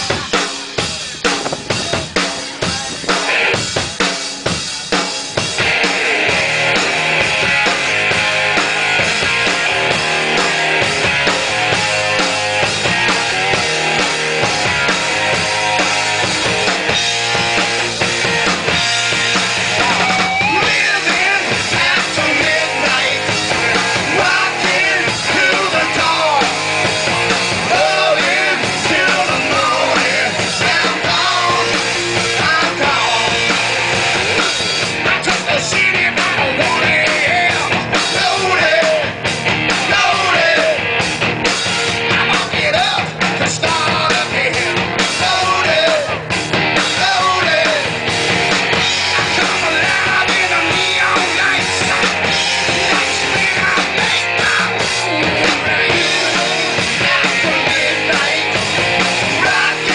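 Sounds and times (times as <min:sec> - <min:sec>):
distorted electric guitars and bass: 0:00.0 - 0:59.9
drum kit: 0:00.0 - 0:59.9
man singing: 0:19.8 - 0:26.9, 0:27.6 - 0:33.6, 0:34.9 - 0:40.9, 0:42.0 - 0:48.0, 0:49.0 - 0:59.9.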